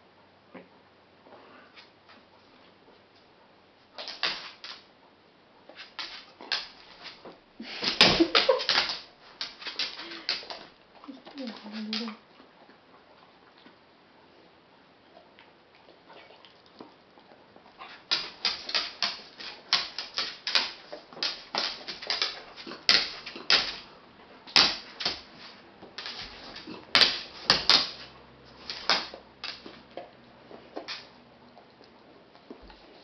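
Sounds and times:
dog chewing with sharp clicks: 0:15.0 - 0:33.0.

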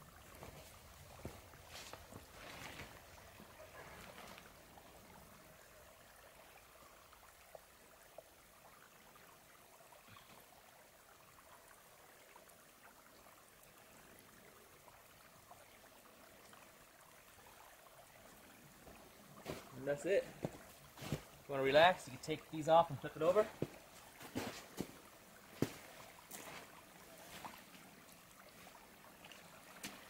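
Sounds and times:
faint outdoor hiss: 0:00.0 - 0:30.0
footsteps in snow: 0:19.4 - 0:19.7, 0:20.4 - 0:21.3, 0:23.6 - 0:25.0.

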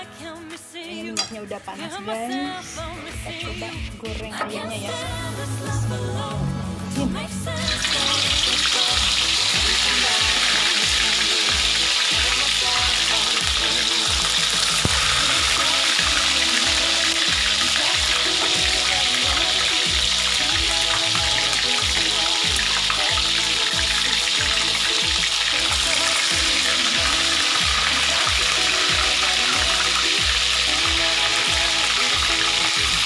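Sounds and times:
chicken sizzling in hot oil: 0:07.5 - 0:33.0.

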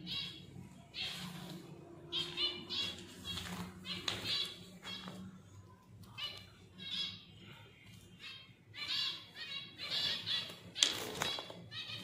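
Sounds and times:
finches calling: 0:08.2 - 0:12.0.

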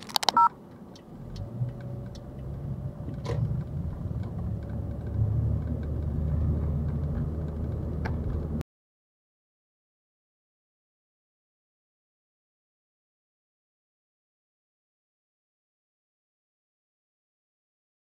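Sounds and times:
road rumble: 0:00.0 - 0:08.6
car engine accelerating: 0:00.1 - 0:08.6.

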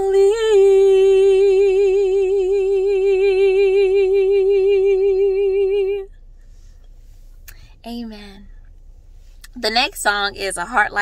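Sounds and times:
woman singing: 0:00.0 - 0:06.1.

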